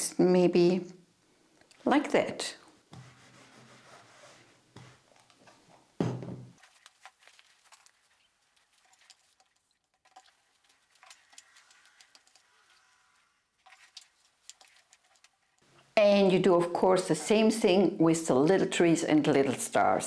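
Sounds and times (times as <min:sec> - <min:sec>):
fabric rustling: 0:02.9 - 0:05.9, 0:06.5 - 0:09.4
louder thump: 0:06.0 - 0:06.5.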